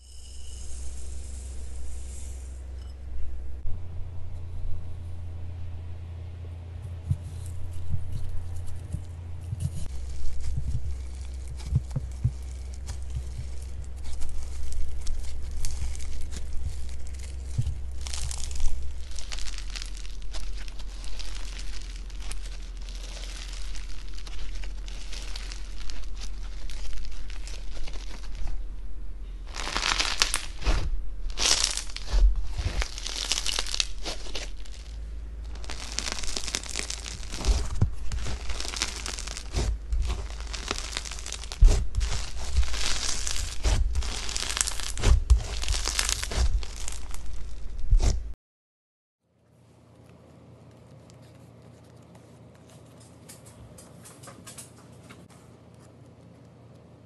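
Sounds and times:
low steady hum: 0.0s - 48.4s, 49.3s - 57.0s
crunchy slime crackling: 9.6s - 48.3s.

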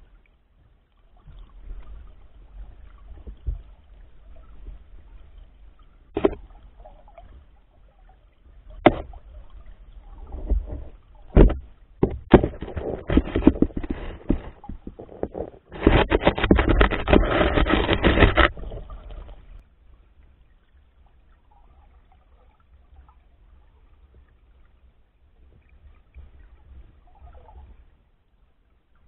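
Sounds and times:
muffled underwater water noise: 0.0s - 29.0s
fish knocking against camera housing: 6.2s - 6.4s, 8.8s - 9.1s, 11.3s - 19.4s.

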